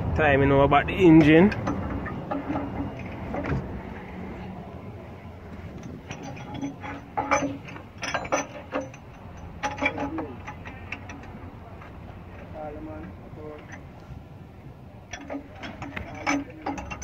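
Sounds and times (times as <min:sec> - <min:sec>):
metal tools clicking and knocking: 0:01.2 - 0:04.1, 0:05.6 - 0:13.9, 0:15.0 - 0:17.0.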